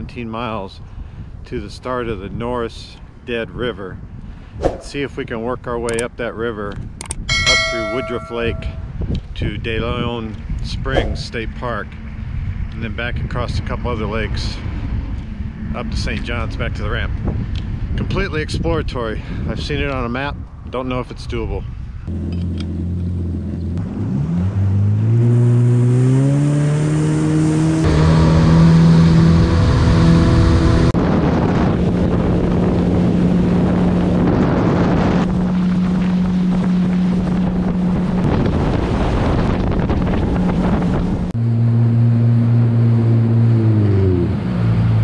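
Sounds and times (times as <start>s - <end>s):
rushing water and wind: 7.3s - 9.0s, 10.9s - 11.3s, 28.0s - 41.3s
watercraft engine accelerating: 22.1s - 45.0s.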